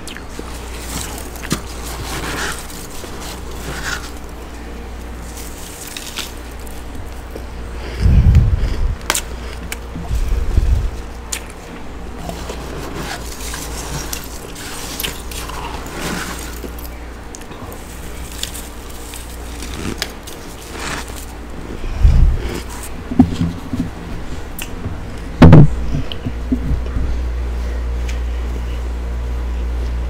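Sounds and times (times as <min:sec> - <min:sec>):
steady low hum: 0:00.0 - 0:30.0
crackling and scraping of frost: 0:00.2 - 0:24.6
loud crunching knocks: 0:24.9 - 0:26.8.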